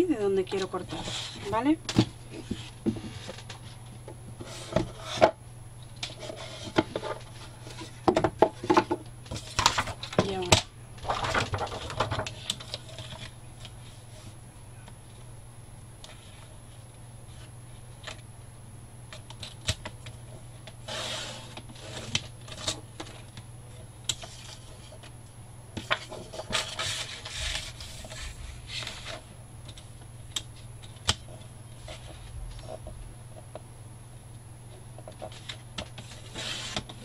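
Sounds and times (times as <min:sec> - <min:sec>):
steady low hum: 0:00.0 - 0:37.0
paper rustling and scraping: 0:00.6 - 0:01.7, 0:02.3 - 0:05.3, 0:06.0 - 0:14.4, 0:20.8 - 0:23.4, 0:24.1 - 0:25.1, 0:25.8 - 0:29.3, 0:30.6 - 0:32.9, 0:35.1 - 0:37.0.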